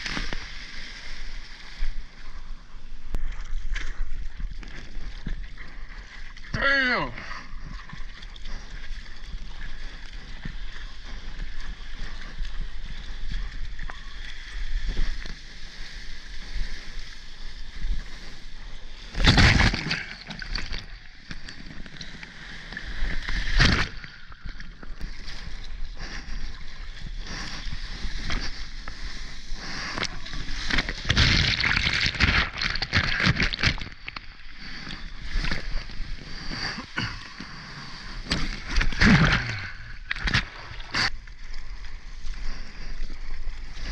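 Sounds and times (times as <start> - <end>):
seawater sloshing and rushing: 7.3 - 43.9
loud water splashes: 19.1 - 21.0, 30.0 - 34.0, 38.3 - 41.1.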